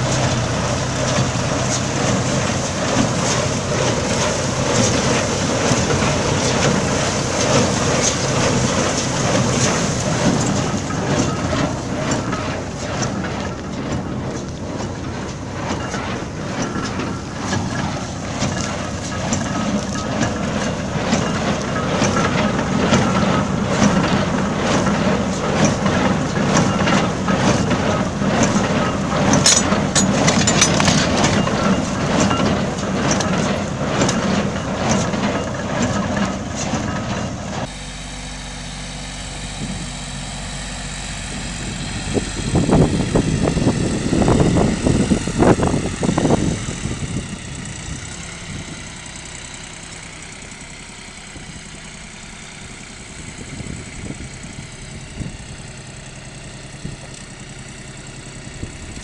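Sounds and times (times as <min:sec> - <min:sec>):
tractor engine running: 0:00.0 - 0:59.0
baler mechanism clattering: 0:02.9 - 0:37.7.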